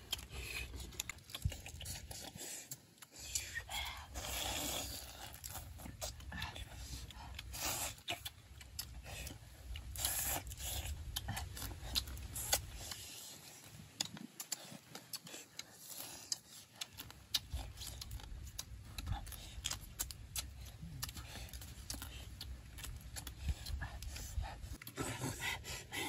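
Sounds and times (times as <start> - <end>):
chewing and sucking: 0.0 - 26.0.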